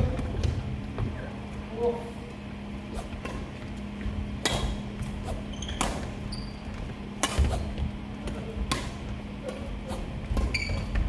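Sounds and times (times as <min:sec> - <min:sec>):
steady low hum: 0:00.0 - 0:11.0
rackets hitting shuttlecock: 0:04.4 - 0:06.3, 0:07.1 - 0:11.0
shoes squeaking on wooden floor: 0:05.0 - 0:07.9, 0:10.4 - 0:11.0.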